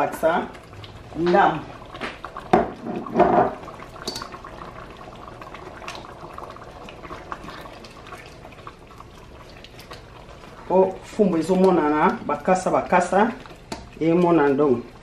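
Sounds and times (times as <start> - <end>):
stew simmering and bubbling: 0.0 - 15.0
knocks on pot: 2.5 - 4.2.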